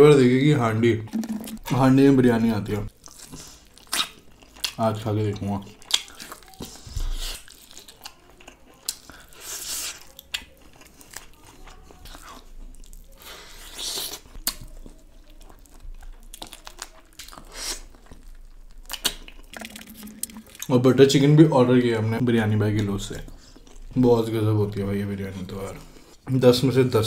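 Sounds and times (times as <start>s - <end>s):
wet mouth clicks and smacks: 1.1s - 1.6s, 18.9s - 20.7s
person chewing meat: 2.9s - 20.7s, 22.8s - 24.0s.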